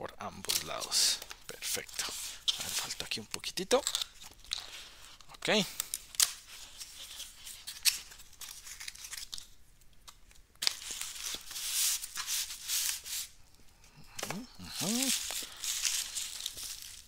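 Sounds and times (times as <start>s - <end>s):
tape and cardboard tearing: 5.9s - 9.5s, 10.6s - 13.4s, 14.2s - 17.0s.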